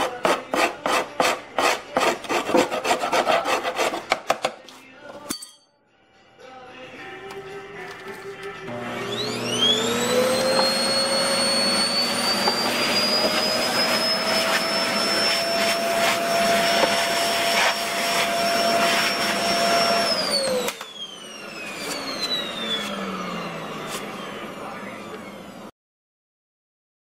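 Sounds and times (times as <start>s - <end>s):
vacuum cleaner whine: 8.6s - 25.7s.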